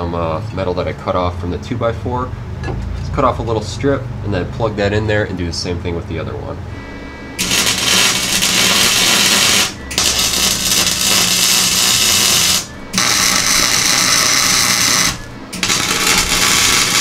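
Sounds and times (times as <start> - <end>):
welding arc crackling: 7.4 - 17.0.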